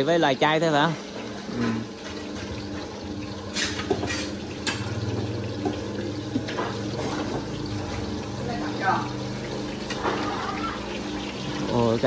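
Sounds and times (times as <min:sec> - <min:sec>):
oil sizzling in woks: 0:00.0 - 0:12.0.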